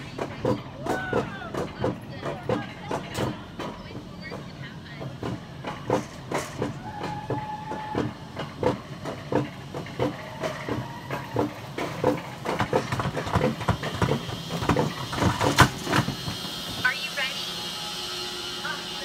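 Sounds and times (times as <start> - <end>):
clickety-clack over rail joints: 0.0 - 16.9
sled wheels rolling on metal rails: 0.0 - 17.4.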